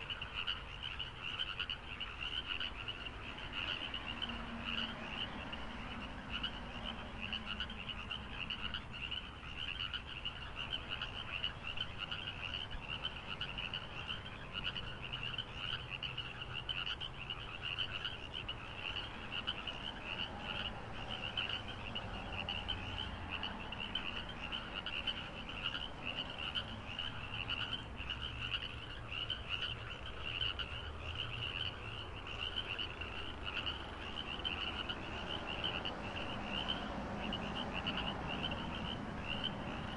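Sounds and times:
frogs trilling: 0:00.0 - 0:39.9.

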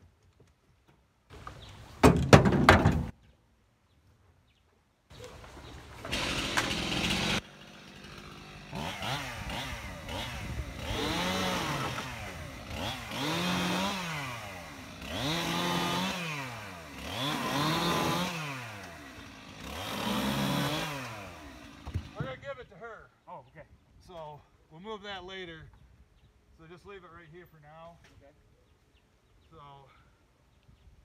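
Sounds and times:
chainsaw revving while cutting: 0:06.1 - 0:22.2.

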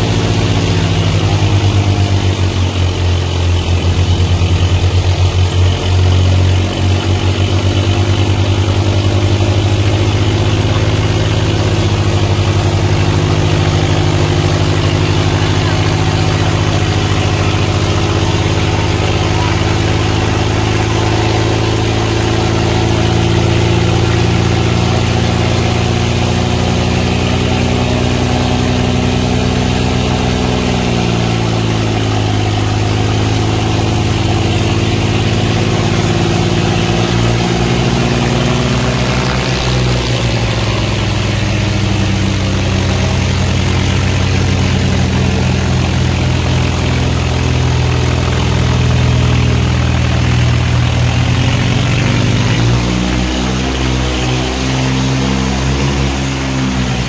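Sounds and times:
diesel tractor engine running: 0:00.0 - 0:57.0.

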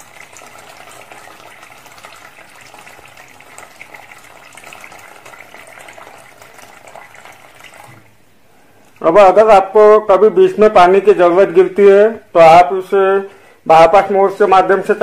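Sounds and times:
water pouring into plastic tub: 0:00.0 - 0:08.2.

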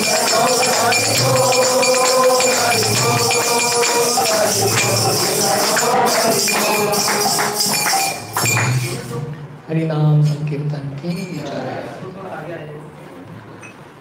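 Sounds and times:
hand cymbals jingling: 0:00.0 - 0:09.1, 0:11.1 - 0:11.5
group singing chant: 0:00.0 - 0:09.2.

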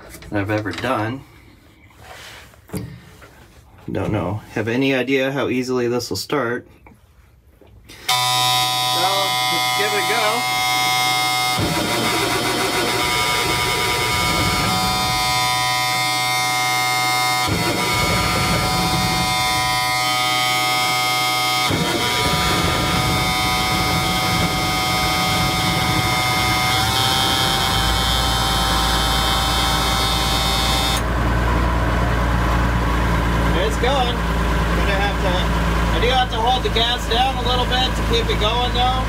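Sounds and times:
starter motor cranking: 0:07.9 - 0:31.0
deep diesel engine rumble: 0:11.6 - 0:39.0.

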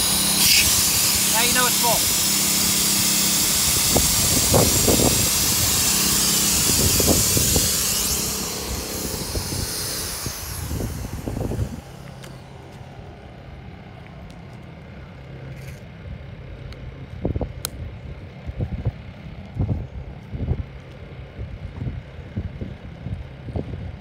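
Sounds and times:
air hissing from relief valve: 0:00.0 - 0:12.3
inflation pump running: 0:00.0 - 0:24.0.

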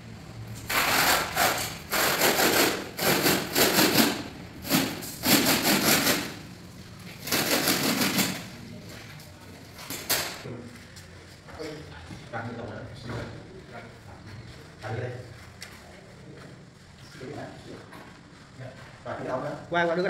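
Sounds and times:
metal spreader scraping adhesive: 0:00.7 - 0:06.4.

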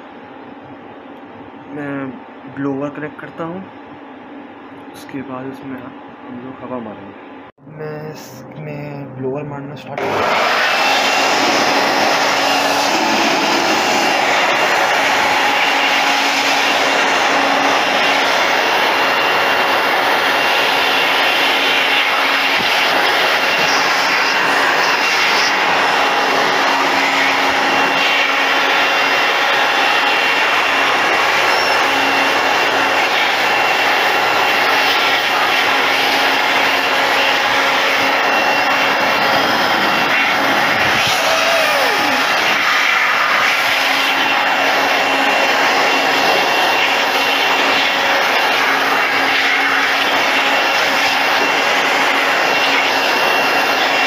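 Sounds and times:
electric air blower whining: 0:09.9 - 0:54.0
short falling whine: 0:38.1 - 0:42.7.

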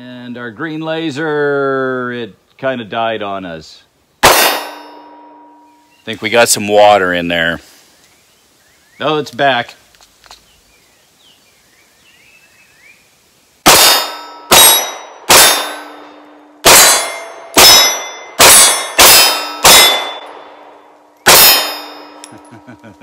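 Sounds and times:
pistol shots: 0:04.2 - 0:05.0, 0:13.6 - 0:22.3
steel target ringing: 0:04.2 - 0:06.0, 0:13.7 - 0:22.6.

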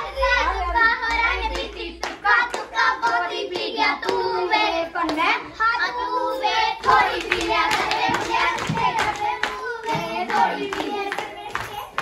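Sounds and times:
girls singing folk song: 0:00.0 - 0:12.0
hands clapping: 0:01.0 - 0:04.3, 0:06.8 - 0:12.0.

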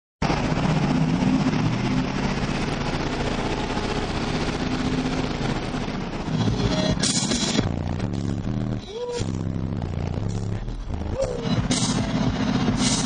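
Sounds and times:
loud bass from car subwoofers: 0:06.1 - 0:13.0.

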